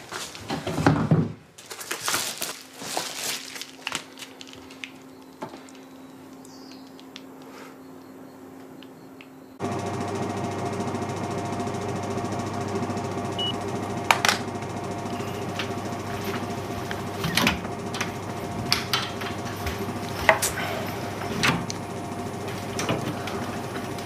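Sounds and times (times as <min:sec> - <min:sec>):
hum of held tones: 0:12.2 - 0:24.0
sharp clicks and knocks: 0:15.5 - 0:20.6.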